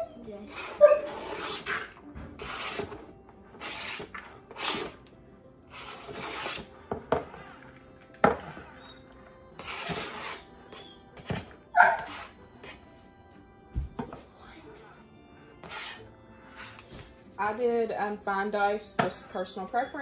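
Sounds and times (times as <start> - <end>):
knife scraping cutting mat: 0.5 - 5.0, 5.7 - 7.6, 9.6 - 12.8, 15.6 - 17.1.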